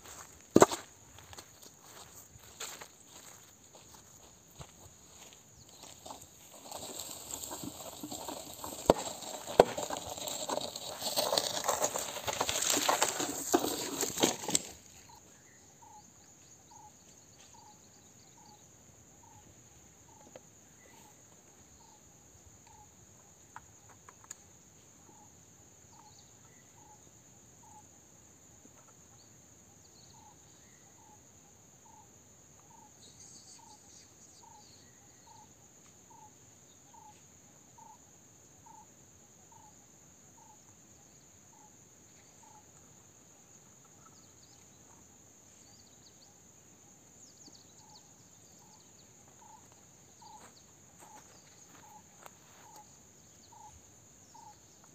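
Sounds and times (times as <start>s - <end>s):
footsteps on dry grass and leaves: 0.0s - 14.9s
short insect chirp: 0.0s - 54.9s.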